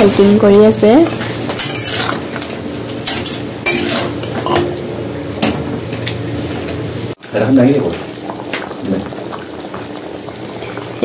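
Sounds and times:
light frying sizzle: 0.0s - 11.0s
metal spatula scraping wok: 1.2s - 2.3s, 3.0s - 4.6s.

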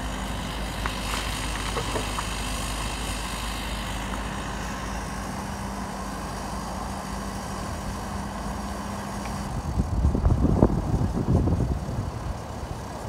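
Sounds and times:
excavator diesel engine humming: 0.0s - 13.0s.

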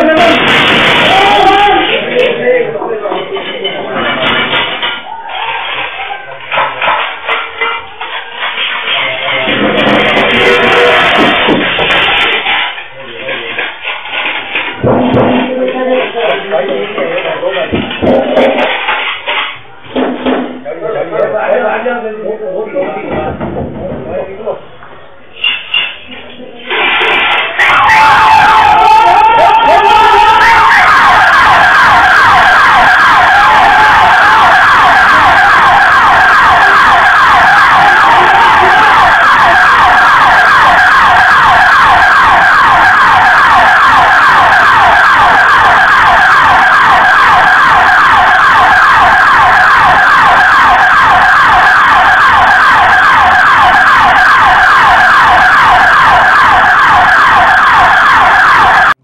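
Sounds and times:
electronic siren wailing: 9.5s - 12.0s, 27.6s - 59.0s.

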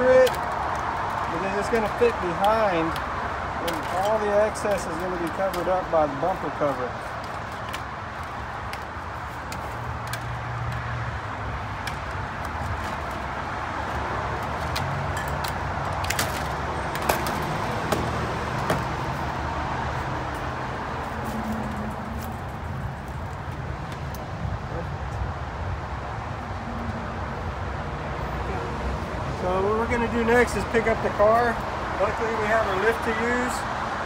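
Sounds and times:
side cutters snipping mesh: 0.2s - 8.0s.

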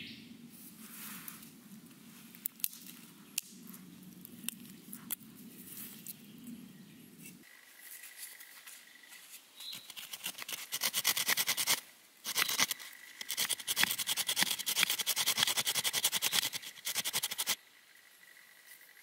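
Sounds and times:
knife scraping wood: 9.1s - 17.6s.

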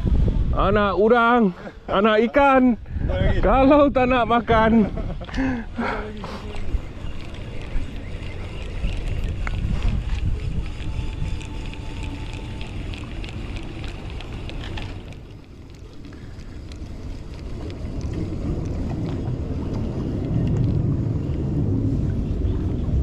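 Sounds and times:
wind buffeting microphone: 0.0s - 23.0s
fishing reel ticking: 5.8s - 19.2s.

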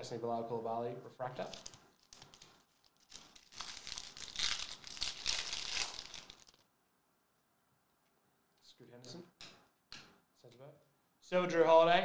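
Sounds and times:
plastic wrapper crinkling and tearing: 1.4s - 6.7s.

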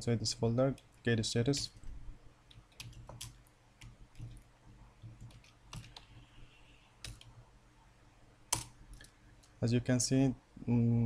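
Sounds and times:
low steady hum: 0.0s - 11.0s
keyboard keys clicking: 2.5s - 4.4s, 5.1s - 6.1s, 7.0s - 7.3s.

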